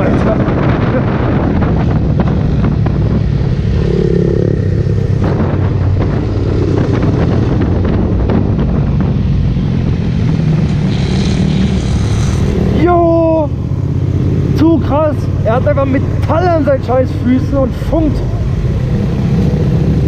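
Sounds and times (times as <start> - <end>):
wind noise on microphone: 0.0 - 14.5
motorcycle engine running: 0.0 - 20.0.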